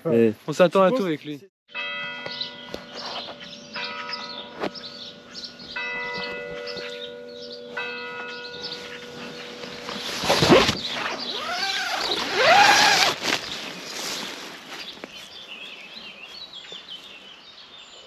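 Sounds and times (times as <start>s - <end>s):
church bell tolling: 1.7s - 9.9s.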